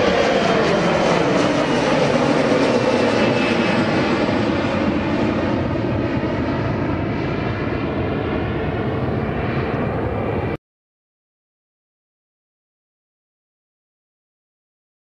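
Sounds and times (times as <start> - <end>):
jet airliner engine roar: 0.0 - 10.6.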